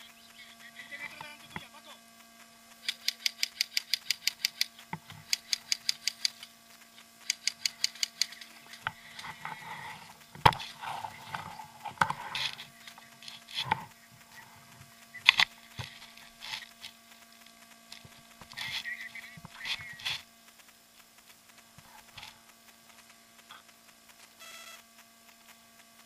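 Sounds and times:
airsoft rifle rapid clicks: 2.8 - 6.6, 7.2 - 9.6.

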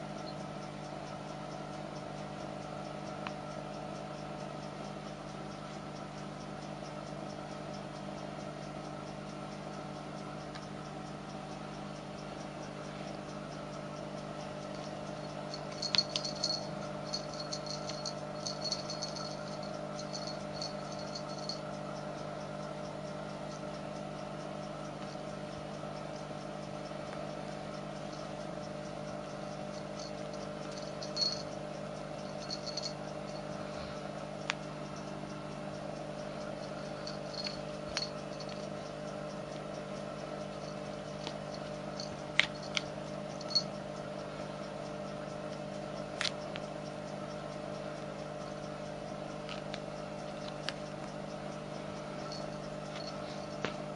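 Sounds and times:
steady background hum: 0.0 - 53.9
kitten pawing rattling toy: 15.1 - 21.6, 30.0 - 31.5, 32.2 - 33.4, 37.0 - 38.7.

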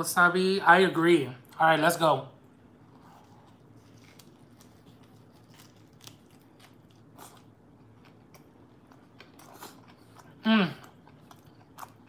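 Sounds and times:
crunchy chewing: 2.8 - 12.0.

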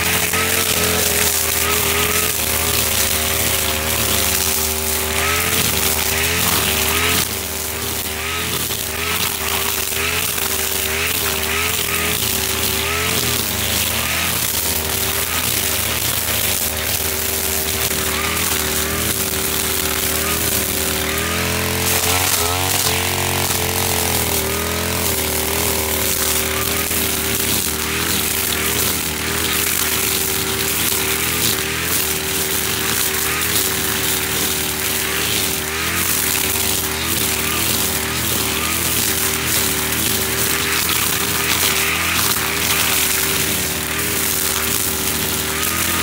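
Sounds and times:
brush cutter engine at high revs: 0.0 - 46.0
nylon line cutting grass: 0.0 - 46.0.

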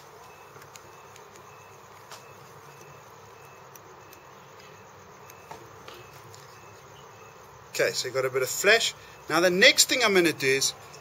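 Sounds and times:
faint high chirp: 0.0 - 9.4.

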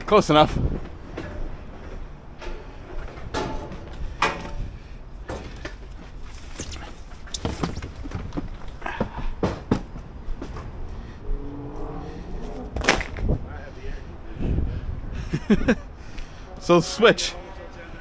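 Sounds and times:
steady low rumble: 10.0 - 16.5.

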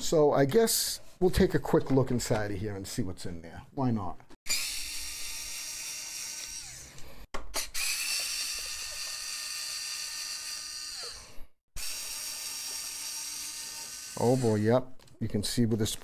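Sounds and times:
electric screwdriver whining: 4.5 - 14.6.

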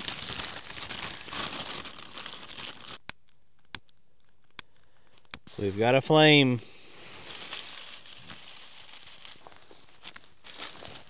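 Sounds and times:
dry material crumpling and rustling: 0.0 - 3.0, 7.0 - 11.0.

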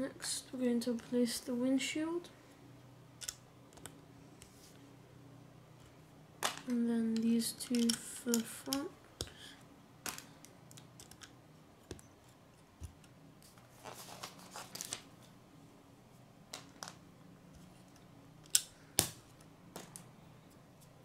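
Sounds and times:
plastic bricks clicking together: 3.2 - 3.9, 6.4 - 9.3, 10.1 - 11.3.

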